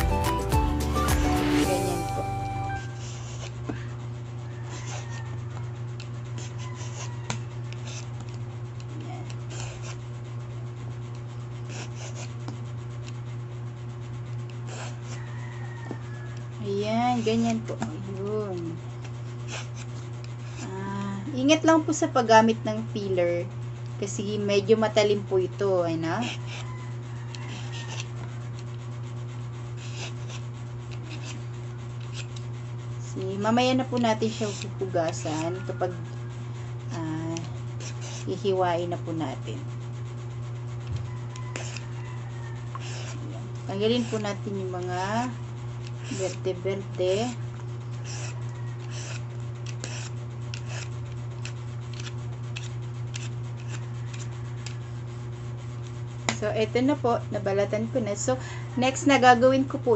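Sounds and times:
low hum: 0:00.1 - 0:04.4
vegetable peeler scraping: 0:02.9 - 0:04.0, 0:04.6 - 0:13.4, 0:14.3 - 0:23.4, 0:24.0 - 0:59.9.

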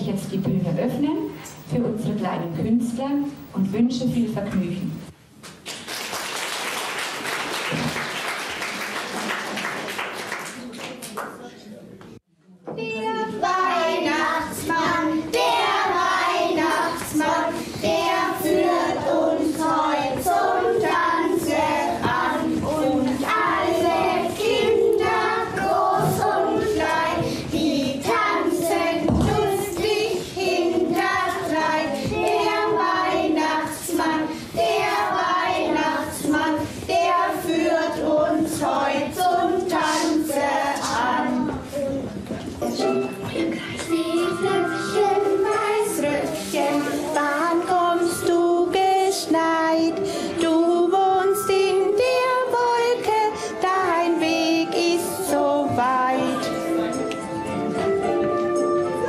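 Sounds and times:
children singing: 0:12.8 - 0:56.9.

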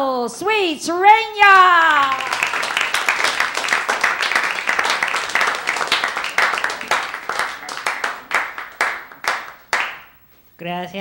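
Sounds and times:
audience applauding: 0:01.6 - 0:10.2.

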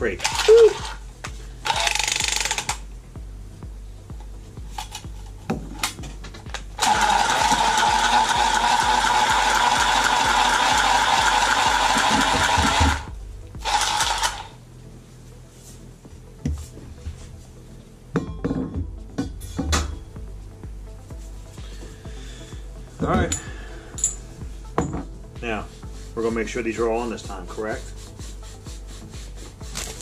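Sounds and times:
tubing cutter whirring: 0:06.8 - 0:14.6.

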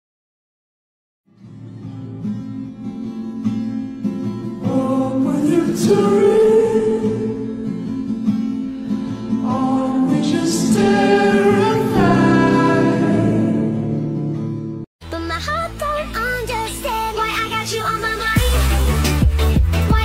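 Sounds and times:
music with singing voices: 0:04.5 - 0:20.0.

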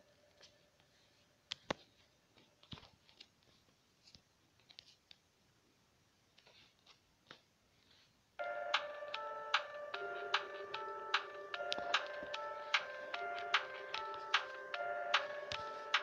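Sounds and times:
music: 0:08.4 - 0:16.0.

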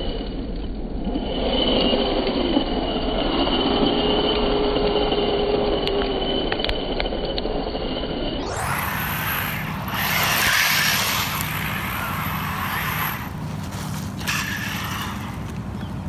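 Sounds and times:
toy truck motor whining: 0:00.0 - 0:16.0
tyres spraying dirt: 0:08.5 - 0:16.0.

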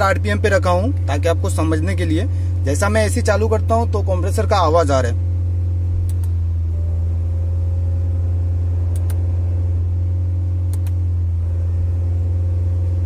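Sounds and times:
car engine hum: 0:00.0 - 0:13.0
double clicks: 0:06.0 - 0:06.4, 0:08.9 - 0:09.2, 0:10.7 - 0:11.0.

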